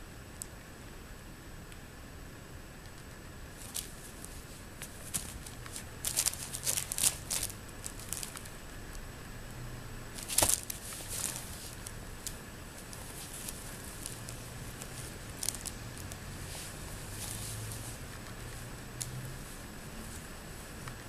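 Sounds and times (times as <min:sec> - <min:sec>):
cat claws scratching nylon fabric: 0:03.5 - 0:08.6, 0:10.2 - 0:20.2.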